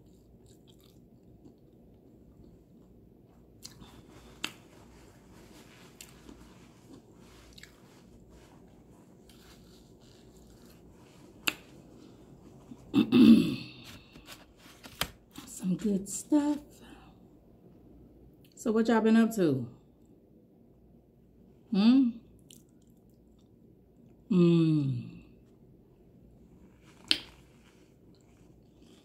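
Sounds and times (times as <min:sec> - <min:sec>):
chewing fried chicken: 0:00.0 - 0:04.8, 0:05.8 - 0:08.2.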